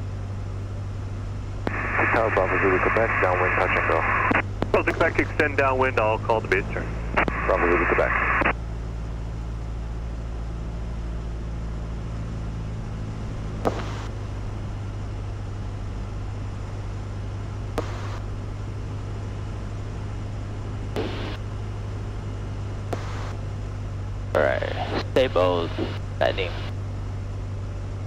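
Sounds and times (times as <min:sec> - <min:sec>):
airplane engine and propeller drone: 0:00.0 - 0:28.0
radio clicks with hiss: 0:01.6 - 0:05.5, 0:07.1 - 0:08.6, 0:13.6 - 0:14.1, 0:17.8 - 0:18.3, 0:21.0 - 0:21.4, 0:22.9 - 0:23.4, 0:24.6 - 0:26.7.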